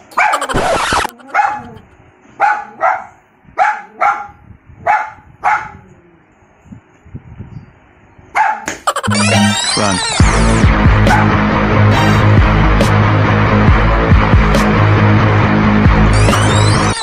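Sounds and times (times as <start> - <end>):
puppy yapping: 0.1 - 4.3.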